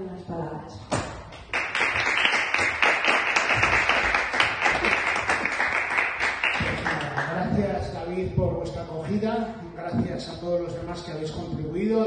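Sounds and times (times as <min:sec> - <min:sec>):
audience applauding: 0:01.4 - 0:07.5.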